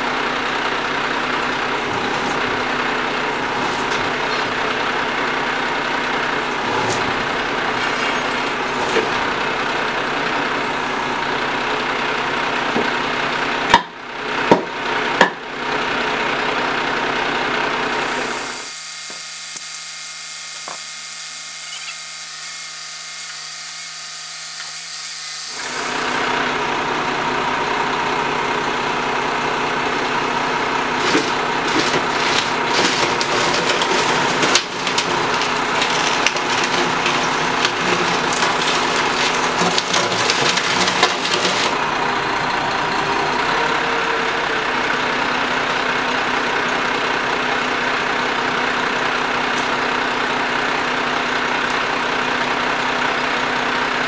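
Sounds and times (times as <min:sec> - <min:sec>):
truck engine running: 0:00.0 - 0:18.7, 0:25.5 - 0:54.0
clicks and rattles: 0:31.0 - 0:41.8.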